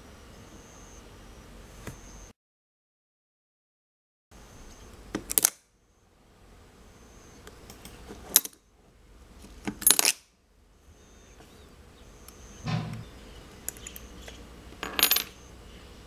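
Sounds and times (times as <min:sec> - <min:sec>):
magnetic metal parts clicking: 0:12.3 - 0:15.4.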